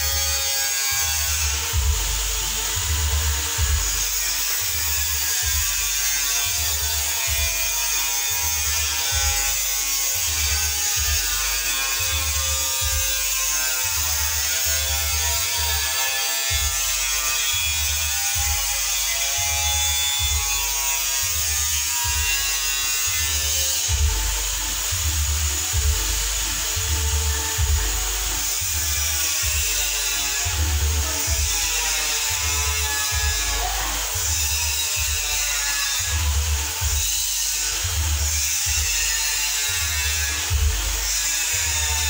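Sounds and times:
pulsing bass beat: 1.1 - 42.0.

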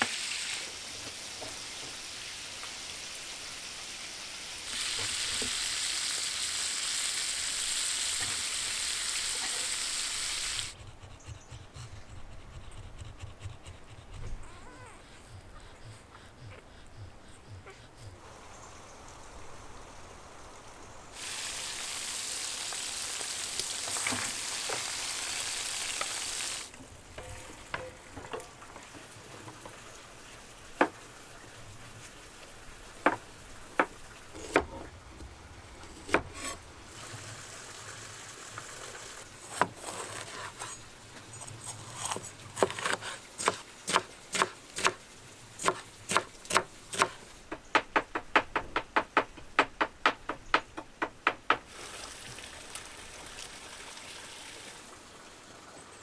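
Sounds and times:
steady hiss: 0.0 - 10.8, 15.1 - 39.4
cleaver chopping on wooden board: 42.0 - 45.0, 45.6 - 47.2.

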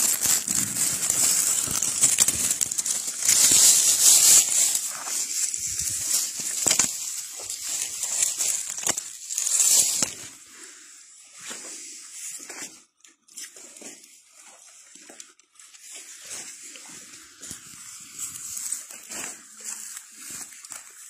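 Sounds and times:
twigs snapping: 0.0 - 10.3
footsteps through dry leaves: 0.0 - 10.5, 16.0 - 21.0.

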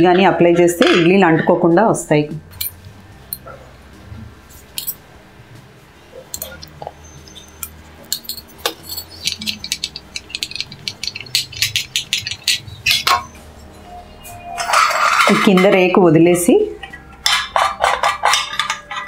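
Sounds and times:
steel plates clinking: 2.5 - 3.6, 4.6 - 5.0, 6.3 - 13.4, 14.3 - 16.0, 16.8 - 19.0.

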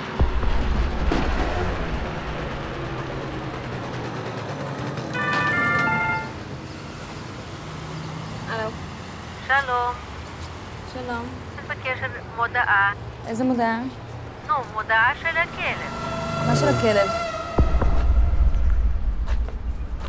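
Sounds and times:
heavy vehicle rumbling past: 0.0 - 9.4, 15.2 - 20.0
street traffic noise: 0.0 - 20.0.

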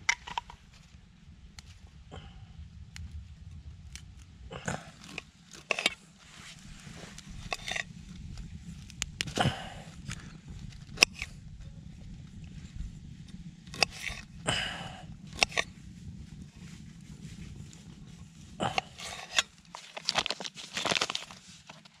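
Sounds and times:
broccoli crunching and rustling: 3.9 - 11.4, 18.6 - 22.0.

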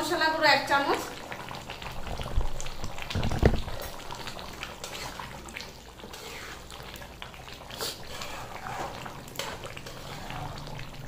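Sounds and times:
pots bubbling at the boil: 0.0 - 11.0
metal spatula stirring in pan: 4.7 - 11.0.

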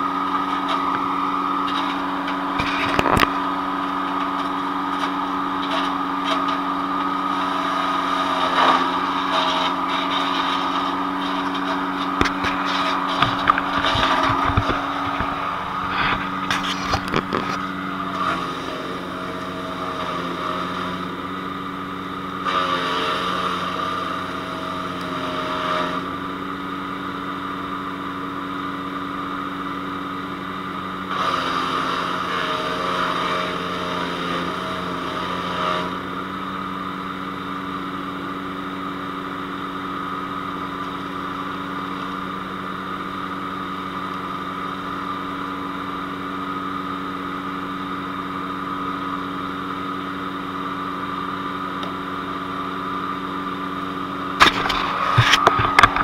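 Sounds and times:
brush going through chipper blades: 0.0 - 21.6, 22.3 - 26.2, 54.3 - 56.0
wood chipper engine running: 0.0 - 56.0.

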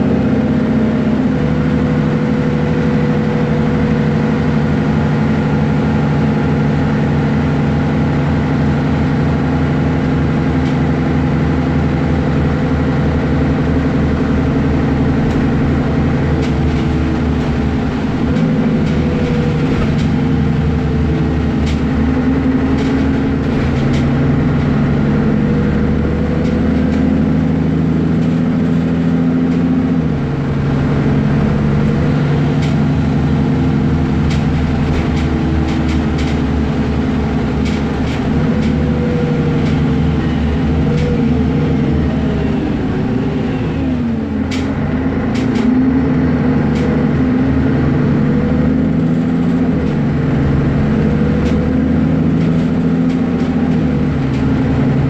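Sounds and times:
bus engine running: 0.0 - 55.0.

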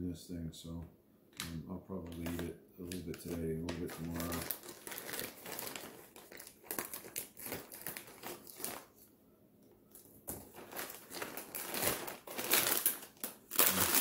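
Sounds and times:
plastic snack bag crinkling: 2.0 - 9.1, 9.9 - 14.0.

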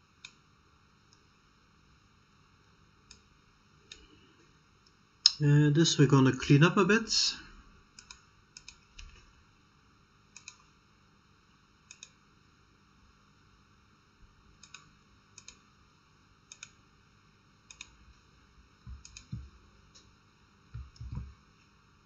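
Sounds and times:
mouse and keyboard clicks: 10.4 - 10.6.

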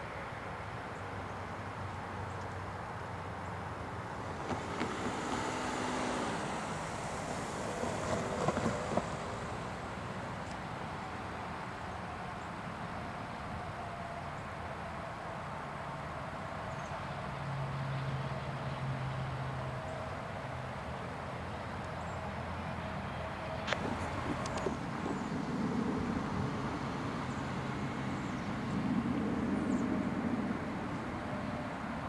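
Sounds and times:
diesel locomotive engine rumbling: 22.1 - 32.0.

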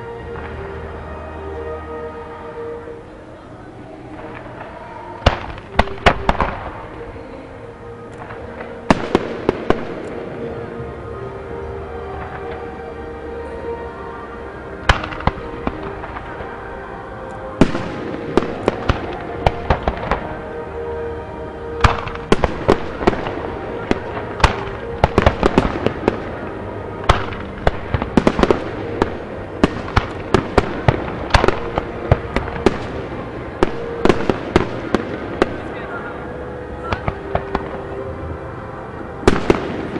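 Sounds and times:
music playing: 0.0 - 39.9
fireworks bursting: 3.8 - 11.2, 12.1 - 12.8, 14.8 - 21.0, 21.8 - 36.2, 36.8 - 38.2, 39.1 - 39.9.

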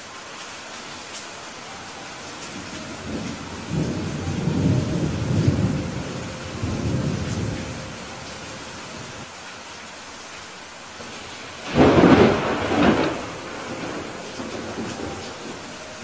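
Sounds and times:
steady rain: 0.0 - 16.0
rolling rumble of thunder: 2.6 - 9.3, 11.0 - 16.0.

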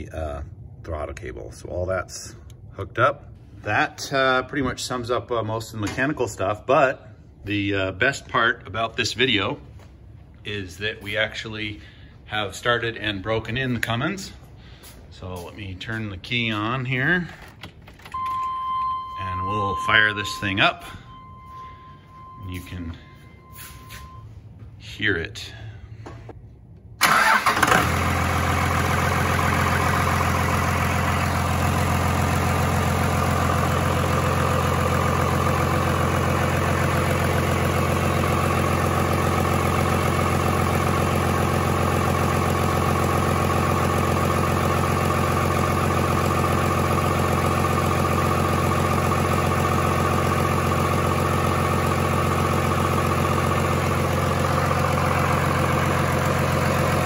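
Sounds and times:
diesel engine starting and idling: 16.0 - 24.6, 26.9 - 57.0.

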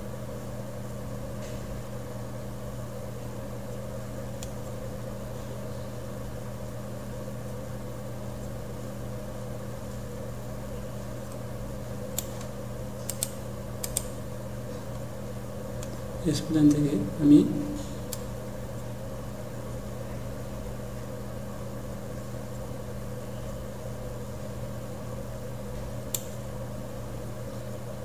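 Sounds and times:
low mechanical hum: 0.0 - 28.0
computer mouse clicking: 12.1 - 14.2, 17.8 - 18.3.

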